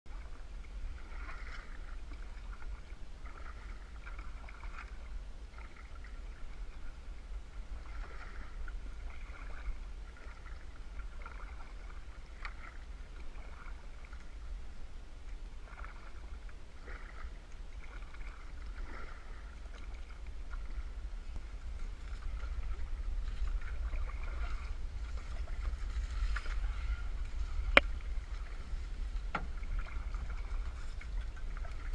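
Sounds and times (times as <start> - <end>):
paddle strokes in water: 0.1 - 31.9
steady low rumble: 0.1 - 31.9.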